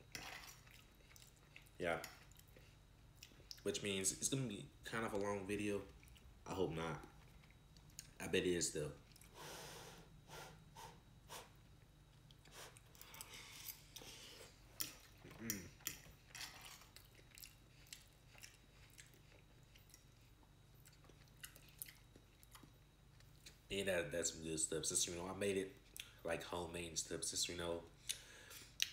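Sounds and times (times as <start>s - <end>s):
person chewing: 0.3s - 3.6s, 5.9s - 6.3s, 9.0s - 9.4s, 11.4s - 23.6s.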